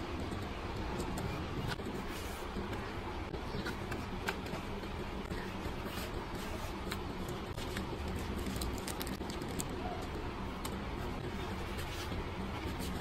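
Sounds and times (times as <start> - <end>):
packaging clicks and rustles: 7.6 - 9.8.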